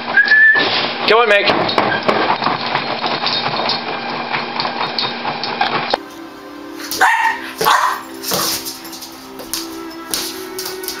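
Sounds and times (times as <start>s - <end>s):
paws pattering on treadmill belt: 0.7s - 6.0s, 6.8s - 11.0s
puppy barking: 6.8s - 8.6s.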